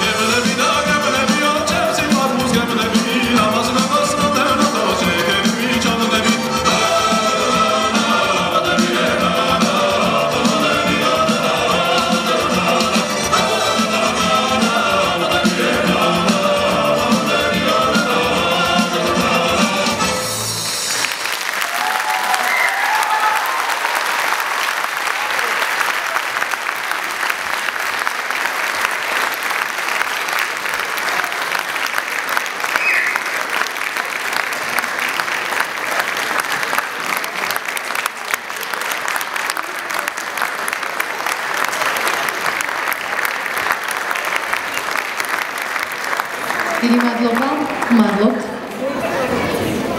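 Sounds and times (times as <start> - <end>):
music: 0.0 - 21.6
audience applauding: 20.6 - 49.4.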